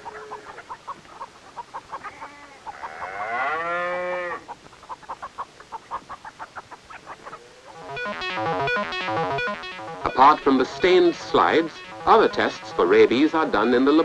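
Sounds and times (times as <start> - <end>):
chickens clucking: 0.0 - 14.0
cow mooing: 2.8 - 4.4.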